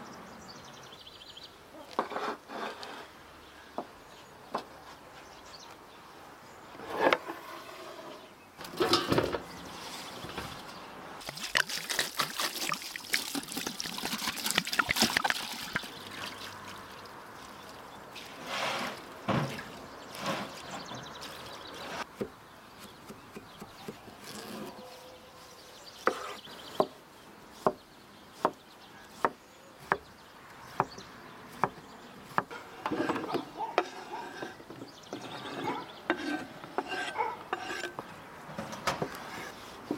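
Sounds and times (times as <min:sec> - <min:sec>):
water pouring into metal basin: 0:11.2 - 0:21.7.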